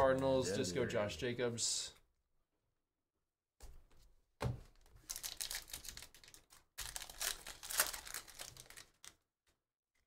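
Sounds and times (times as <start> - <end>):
foil wrapper crinkling and tearing: 5.0 - 9.3.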